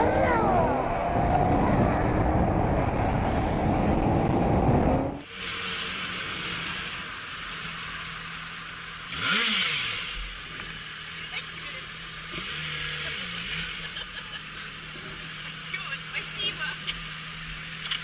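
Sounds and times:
wind rushing over microphone: 0:00.0 - 0:05.2.

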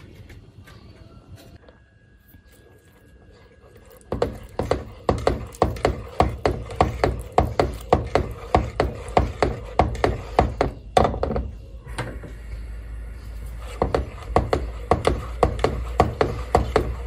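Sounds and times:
whisk knocking against pot: 0:04.1 - 0:11.5, 0:13.7 - 0:17.0.

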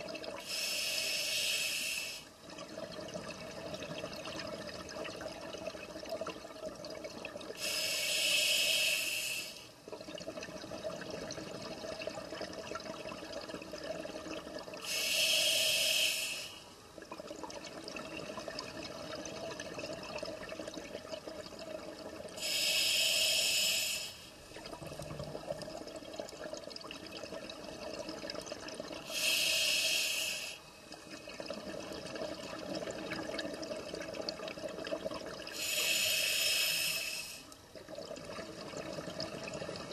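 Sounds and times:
diver breathing through regulator: 0:00.4 - 0:02.3, 0:07.6 - 0:09.7, 0:14.8 - 0:16.7, 0:22.4 - 0:24.3, 0:29.1 - 0:30.7, 0:35.6 - 0:37.5.

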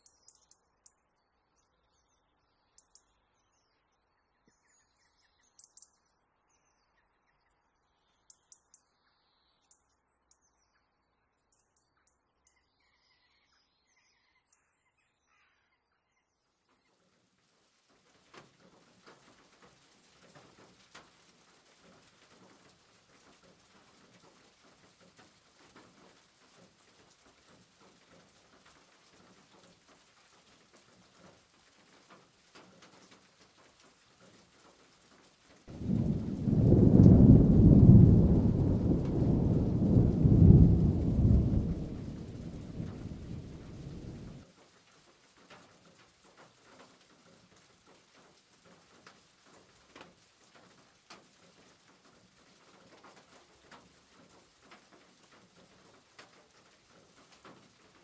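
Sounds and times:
loud low rumble: 0:35.8 - 0:44.4.

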